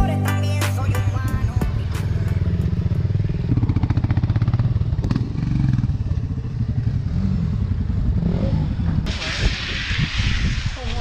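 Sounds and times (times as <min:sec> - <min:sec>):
motorcycle engine running: 0:00.0 - 0:09.0.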